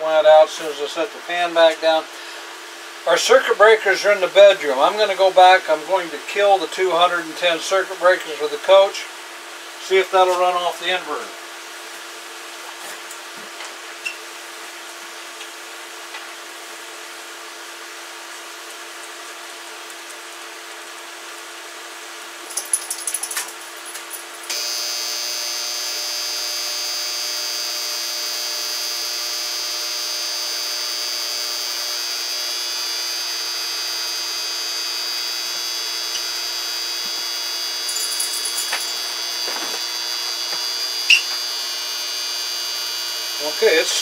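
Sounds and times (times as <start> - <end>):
induction hot plate humming: 0.0 - 22.7, 23.5 - 44.0
high-pitched electrical buzz: 22.2 - 44.0.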